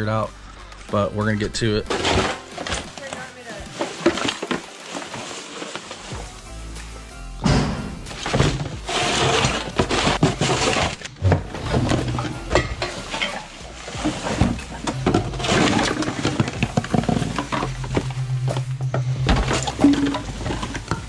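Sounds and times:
shovel scraping across floor: 1.8 - 6.3, 8.0 - 17.9
leaves and trash rustling: 1.8 - 6.5, 8.0 - 21.0
clattering knocks: 7.4 - 21.0.

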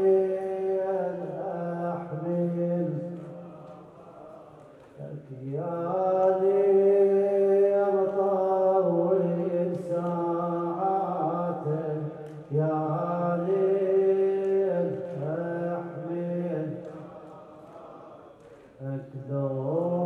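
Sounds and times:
man chanting solo: 0.0 - 18.1.

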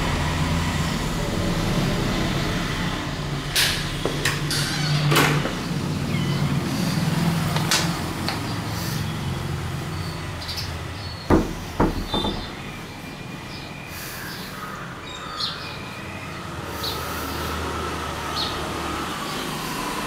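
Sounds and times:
clicks and knocks: 11.3 - 12.6
sharp thumps: 11.3 - 12.7.

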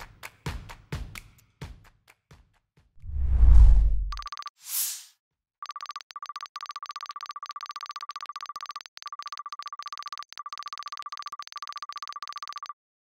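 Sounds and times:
electronic typing ticks: 4.1 - 4.5, 5.6 - 12.8.

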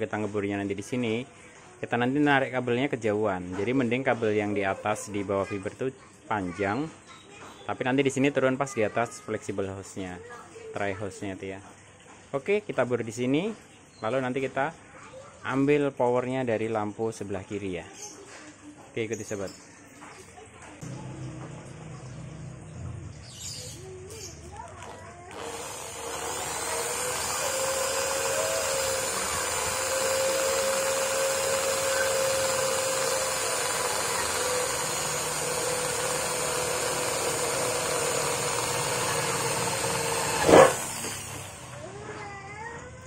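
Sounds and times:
electric drill whining: 25.3 - 41.9.

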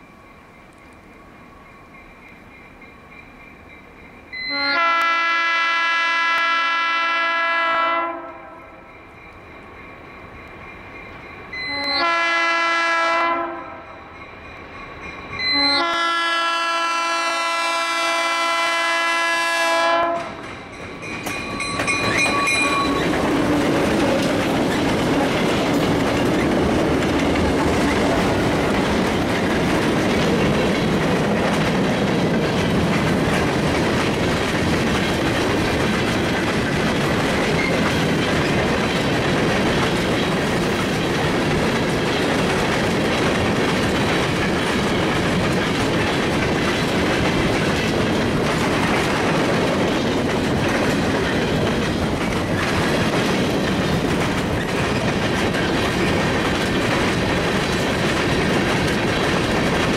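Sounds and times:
train wheels rolling on rail: 0.0 - 59.9
locomotive air horn blasts: 4.4 - 8.7, 11.6 - 14.0, 15.5 - 20.4.

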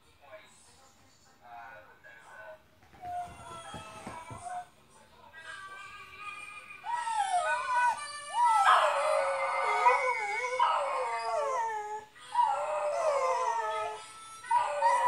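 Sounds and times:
dog howling: 6.8 - 15.0.

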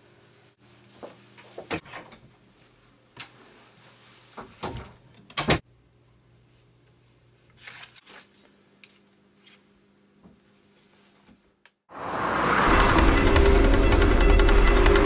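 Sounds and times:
pages rustling: 7.5 - 9.7.

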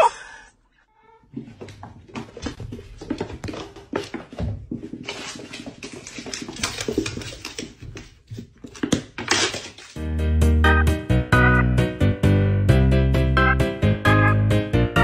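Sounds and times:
cats scuffling on wooden floor: 1.3 - 10.0.

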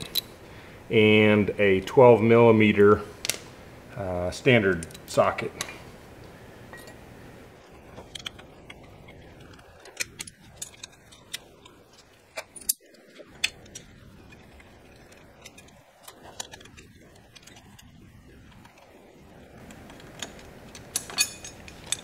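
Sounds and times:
metal tools clinking: 0.0 - 0.3, 6.7 - 7.0, 7.8 - 18.9, 19.5 - 22.0.

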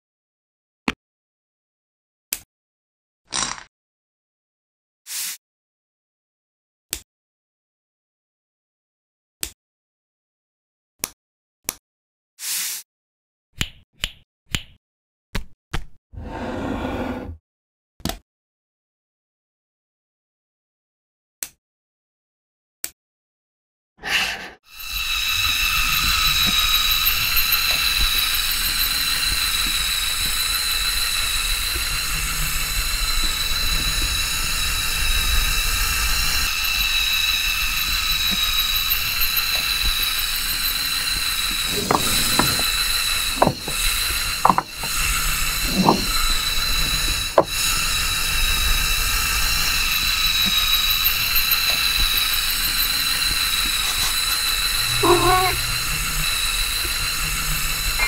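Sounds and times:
small electric motor whining: 24.7 - 58.0.

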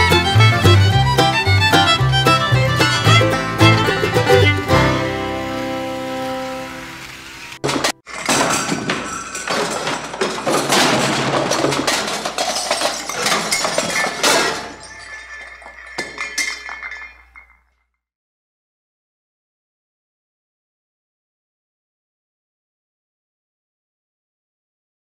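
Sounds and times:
banjo bluegrass music: 0.0 - 8.1
glass crashing and breaking: 7.6 - 17.7.

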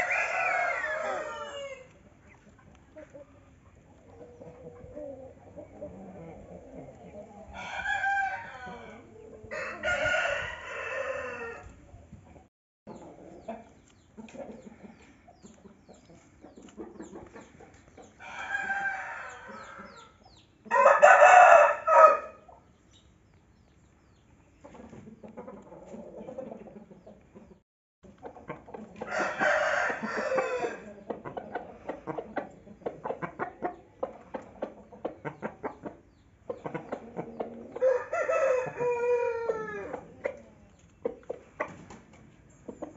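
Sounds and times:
rooster crowing: 0.0 - 1.9, 7.6 - 11.7, 18.2 - 20.1, 20.7 - 22.4, 29.1 - 30.8, 37.8 - 39.9
chicken clucking: 0.0 - 9.9, 11.9 - 21.5, 23.6 - 42.9.

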